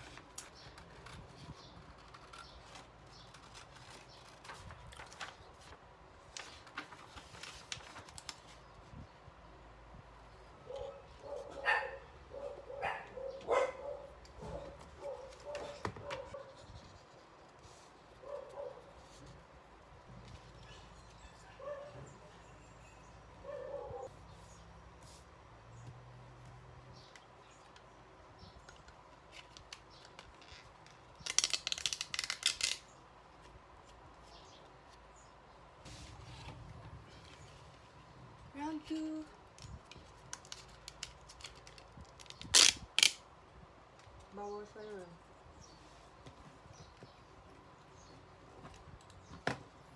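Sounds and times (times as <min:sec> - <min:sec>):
dog barking: 0:10.6 - 0:16.5, 0:18.2 - 0:18.9, 0:21.5 - 0:22.1, 0:23.4 - 0:24.1
chocolate wrapper crinkling: 0:31.1 - 0:32.8.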